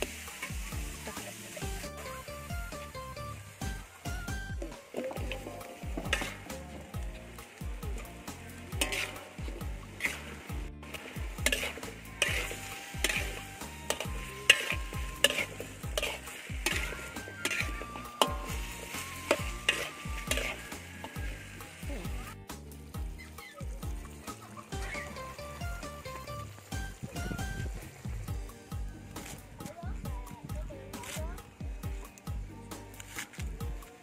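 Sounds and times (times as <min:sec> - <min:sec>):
spatula scraping metal wok: 0:00.0 - 0:22.4, 0:32.9 - 0:33.5
food sizzling: 0:00.0 - 0:34.0.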